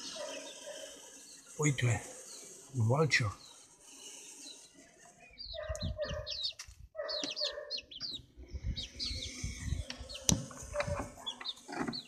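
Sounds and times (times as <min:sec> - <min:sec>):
chickens clucking and calling: 0:03.5 - 0:12.0.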